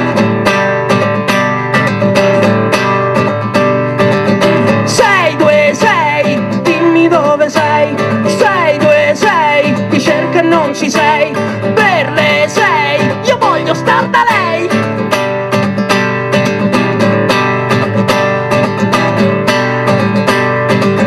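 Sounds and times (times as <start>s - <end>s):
acoustic guitar strumming: 0.0s - 21.0s
man singing: 4.8s - 14.9s.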